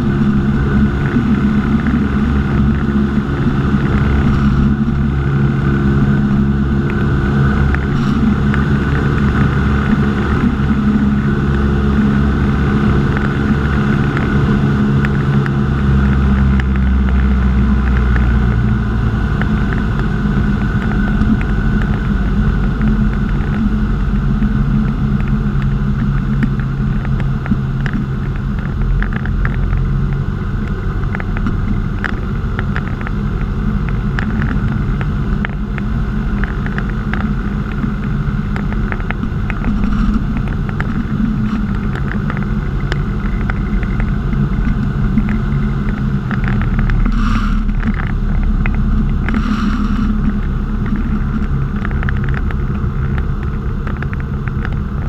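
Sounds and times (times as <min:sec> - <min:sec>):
light aircraft engine droning: 0:00.0 - 0:55.0.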